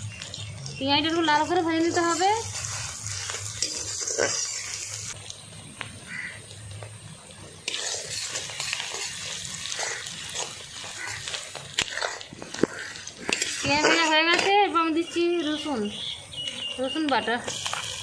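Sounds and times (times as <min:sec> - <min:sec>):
onions sizzling in oil: 0:00.0 - 0:18.0
spatula stirring: 0:00.1 - 0:05.2, 0:07.6 - 0:14.7.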